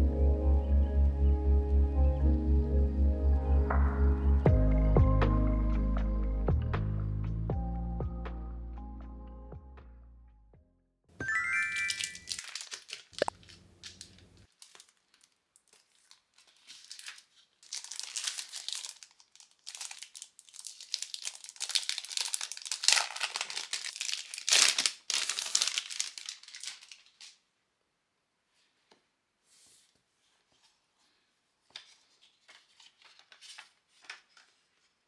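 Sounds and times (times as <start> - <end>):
plastic wrap crinkling and tearing: 11.6 - 27.4.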